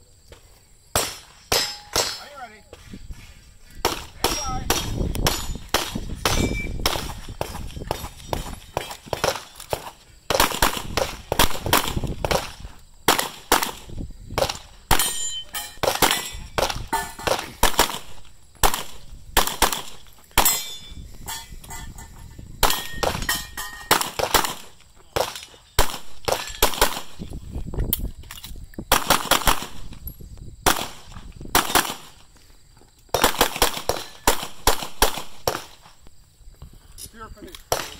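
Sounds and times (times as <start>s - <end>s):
pistol shots: 3.8s - 20.8s, 22.6s - 27.2s, 28.9s - 29.9s, 30.6s - 32.2s, 33.2s - 35.9s, 37.7s - 37.9s.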